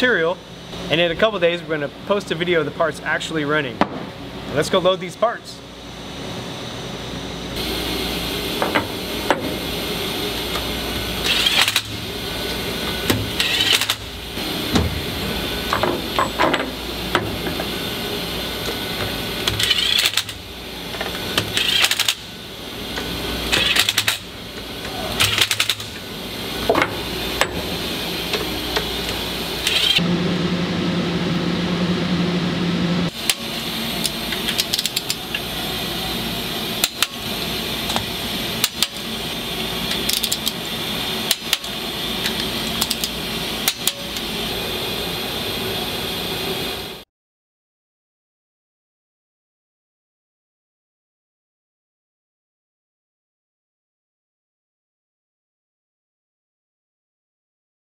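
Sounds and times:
low hum: 0:05.6 - 0:21.0
machine shop noise: 0:05.6 - 0:47.0.

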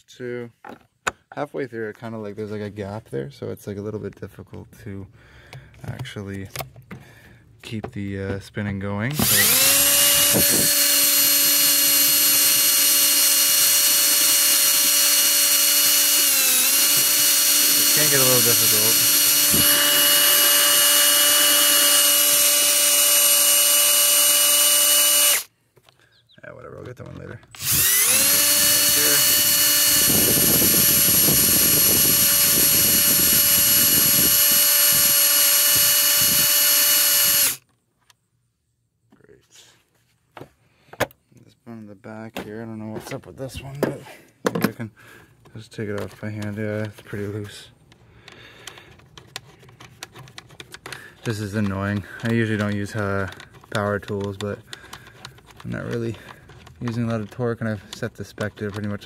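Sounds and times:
cordless drill running: 0:09.2 - 0:25.5, 0:27.5 - 0:37.7, 0:48.3 - 0:58.0.

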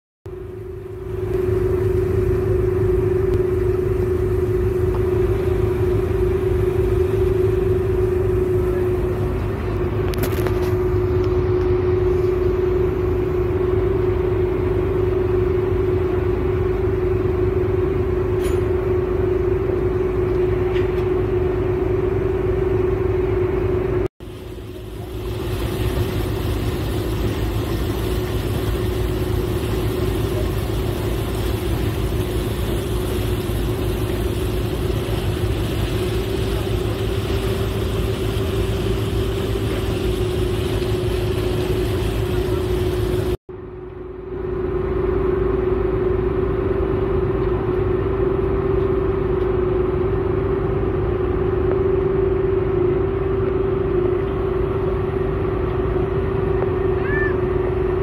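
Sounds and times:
ferry engine rumbling: 0:00.3 - 0:58.0.

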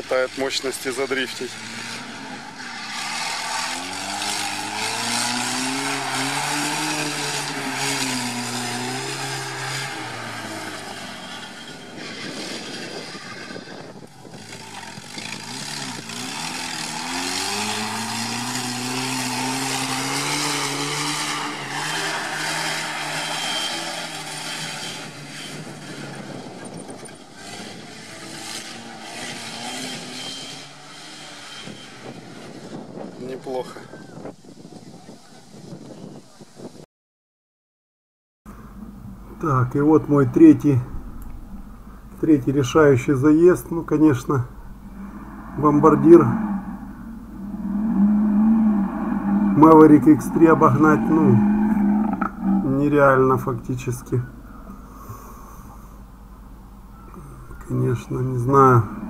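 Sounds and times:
car engine revving hard: 0:00.0 - 0:12.8, 0:14.4 - 0:32.8, 0:39.6 - 0:54.4
tyre and wind noise: 0:01.5 - 0:36.8.

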